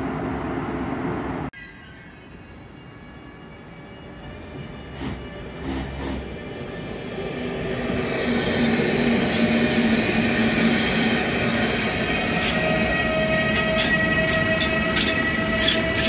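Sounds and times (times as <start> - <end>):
train rolling past: 0.0 - 16.0
high squeal from running gear: 1.8 - 9.8, 12.1 - 16.0.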